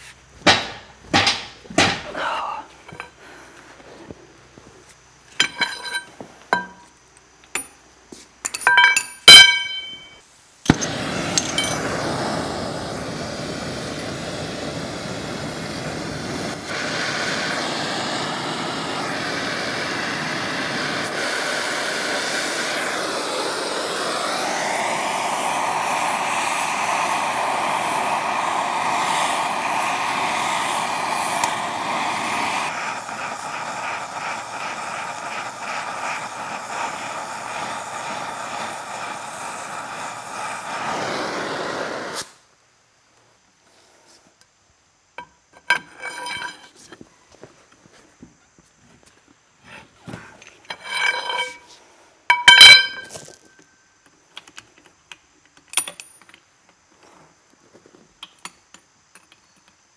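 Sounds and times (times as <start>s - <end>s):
torch flame hissing: 0.0s - 7.4s, 8.1s - 44.3s, 45.2s - 46.8s, 49.4s - 53.3s
torch lighting pop: 0.4s - 2.1s, 10.7s - 12.6s, 24.4s - 36.3s.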